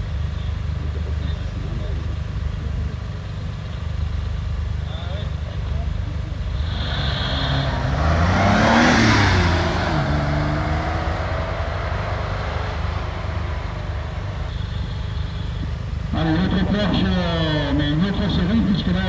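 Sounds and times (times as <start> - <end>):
car engine revving hard: 6.5 - 16.8.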